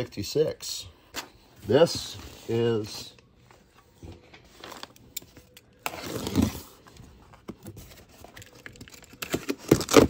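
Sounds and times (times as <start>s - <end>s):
tape tearing with box cutter: 5.9s - 6.7s, 9.2s - 10.0s.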